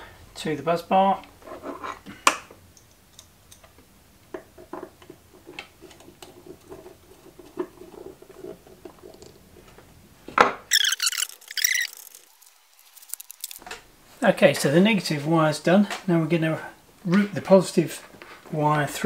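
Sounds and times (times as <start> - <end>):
high-pitched metal scraping: 10.7 - 13.6.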